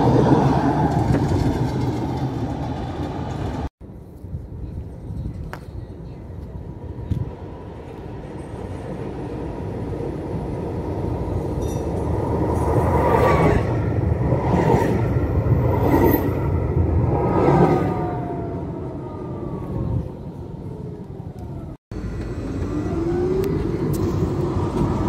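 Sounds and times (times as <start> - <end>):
tram whine: 0.0 - 3.7, 6.4 - 25.0
wheels rattling: 0.0 - 3.7
tram passing on rails: 0.0 - 25.0.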